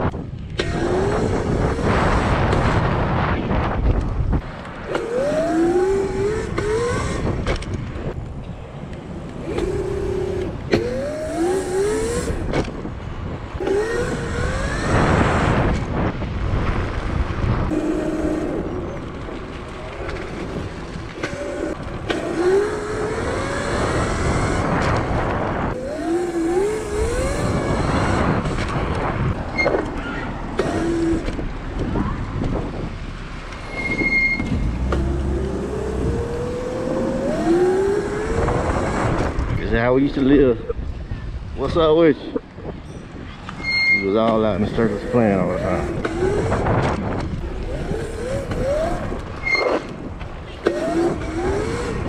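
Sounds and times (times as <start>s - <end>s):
rushes of noise: 0.0s - 41.6s, 42.3s - 52.0s
electric motor whining: 0.6s - 2.7s, 4.9s - 7.7s, 9.4s - 12.8s, 13.6s - 15.9s, 17.7s - 19.2s, 20.2s - 29.0s, 29.6s - 31.4s, 33.5s - 39.5s, 44.4s - 52.0s.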